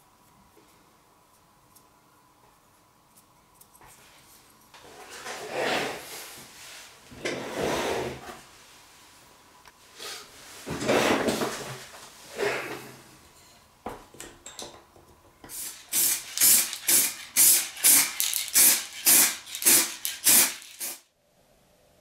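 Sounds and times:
spray can ball rattling: 15.5s - 21.0s.

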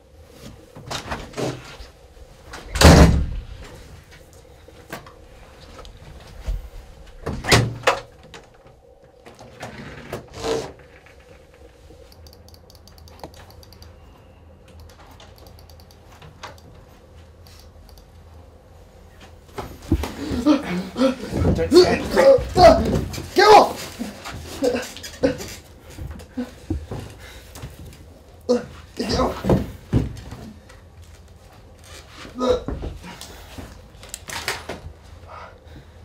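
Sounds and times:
heavy door thud: 2.6s - 3.7s.

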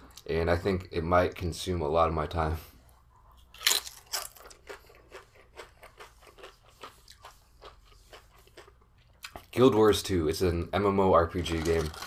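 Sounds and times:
crunchy chewing: 3.3s - 9.6s
tortilla chip crunching: 3.5s - 9.5s, 11.3s - 12.0s.

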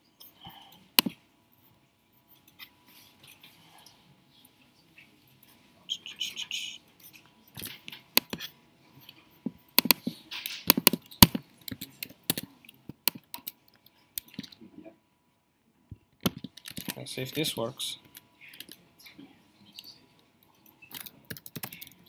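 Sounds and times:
laptop keyboard clicking: 1.0s - 1.2s, 9.7s - 13.6s, 16.2s - 17.0s, 20.9s - 22.0s.

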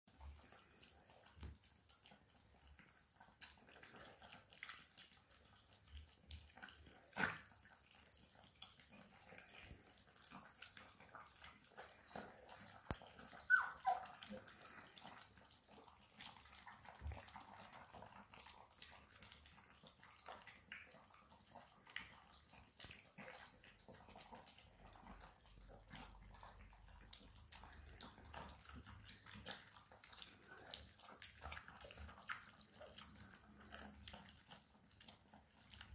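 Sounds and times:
puppies lapping milk: 0.1s - 35.9s
puppy whining: 11.8s - 15.0s, 35.2s - 35.9s.

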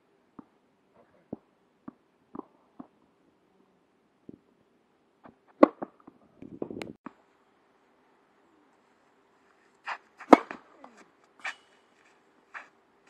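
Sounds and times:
tennis ball bouncing on clay: 1.3s - 3.0s, 5.5s - 6.0s, 9.9s - 11.6s
racket hitting ball: 5.5s - 6.0s, 9.9s - 12.7s.

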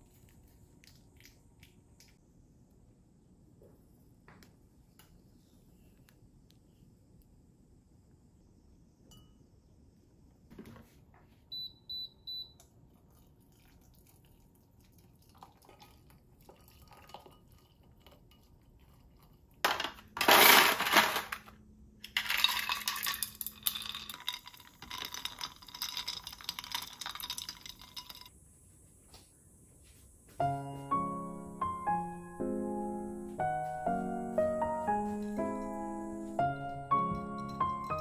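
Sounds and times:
spoons clinking against glasses: 22.2s - 28.3s, 36.9s - 38.0s.

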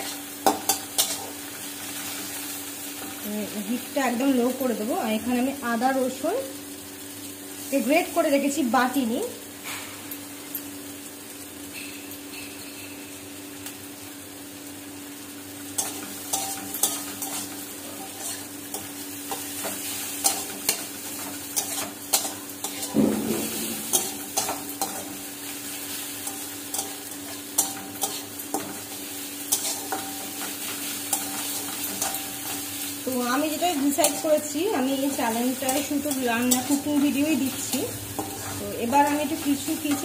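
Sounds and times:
vegetables sizzling in oil: 0.0s - 40.0s
metal spatula scraping pan: 15.8s - 25.2s, 29.5s - 32.6s.

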